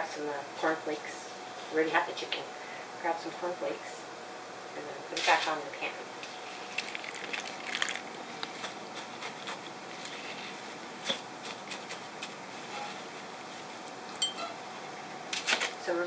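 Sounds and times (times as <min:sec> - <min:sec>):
cornflakes crackling: 0:06.5 - 0:08.8.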